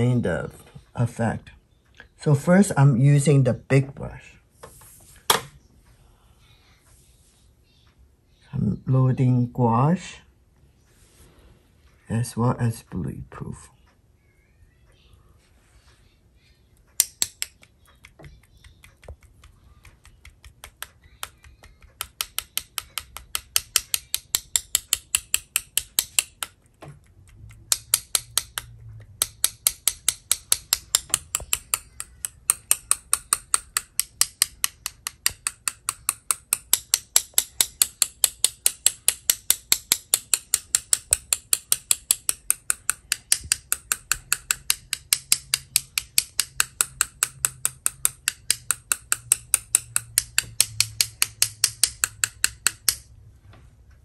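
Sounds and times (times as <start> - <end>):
paintbrush tapping clicks: 16.8 - 53.1.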